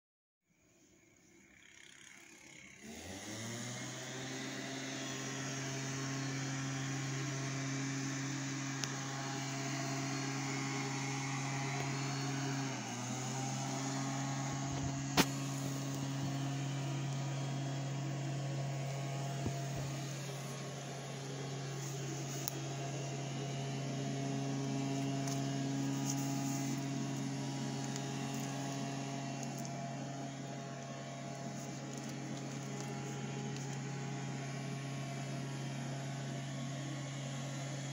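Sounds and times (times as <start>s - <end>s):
motorcycle engine idling: 14.2s - 36.1s.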